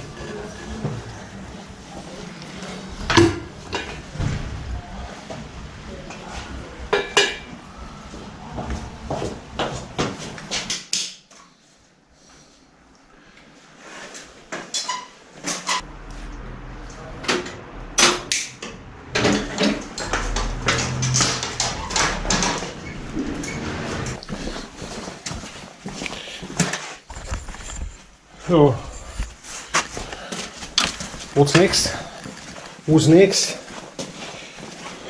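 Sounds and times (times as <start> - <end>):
low handling rumble: 15.8 - 24.3.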